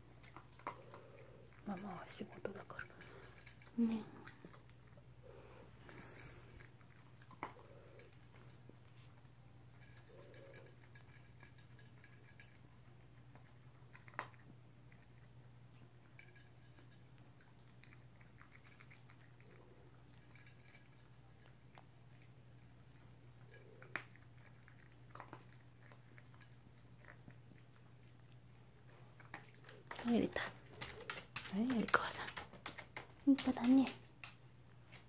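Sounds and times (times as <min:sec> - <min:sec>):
dog chewing food: 0:00.0 - 0:35.0
food clicking in bowl: 0:29.4 - 0:34.4.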